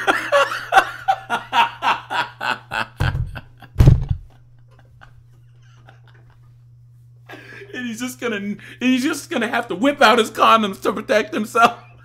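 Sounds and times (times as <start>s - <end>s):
man laughing: 0.0s - 6.4s, 7.3s - 8.8s, 11.6s - 12.0s
faint hum: 0.0s - 12.0s.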